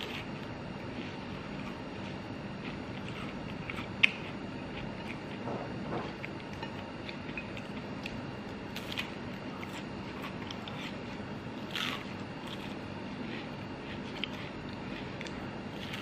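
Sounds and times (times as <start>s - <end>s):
mouth chewing: 0.0s - 16.0s
steady background hum: 0.0s - 16.0s
crisp bite: 11.6s - 12.8s.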